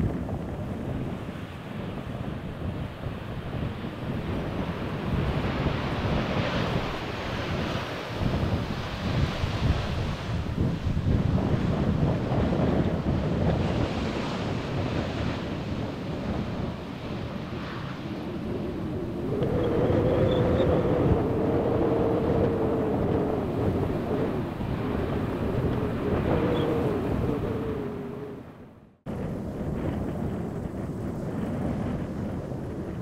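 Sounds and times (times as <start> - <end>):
jet airliner rumble: 0.0 - 33.0
wind buffeting microphone: 0.0 - 33.0
jet engine whine: 17.2 - 33.0.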